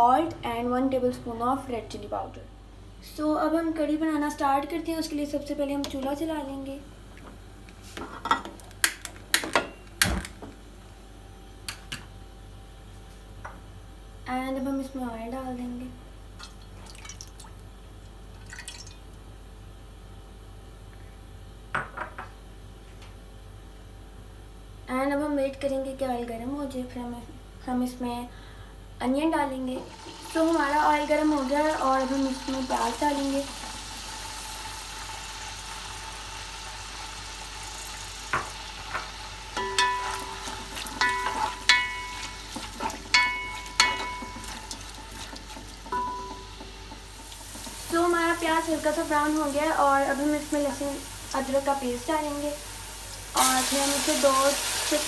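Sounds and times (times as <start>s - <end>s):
onions sizzling in oil: 29.8s - 55.0s
spoon striking pot: 39.6s - 44.7s, 45.9s - 47.1s.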